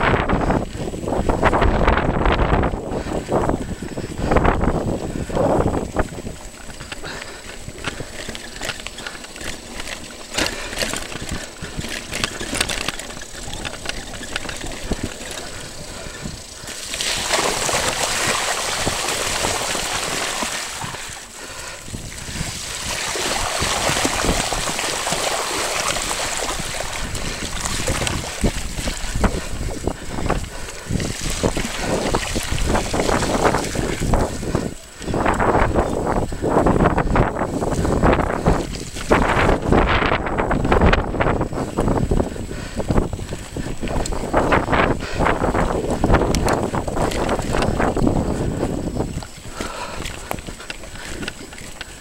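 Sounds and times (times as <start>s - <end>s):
bike rattling over stony track: 0.0s - 52.0s
tyres splashing through puddles: 6.8s - 34.9s.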